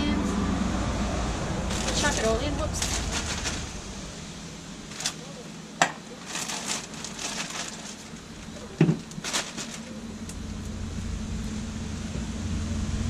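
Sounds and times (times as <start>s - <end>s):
low rumble: 0.0s - 4.9s, 10.0s - 13.0s
plastic bag rustling: 1.6s - 10.2s.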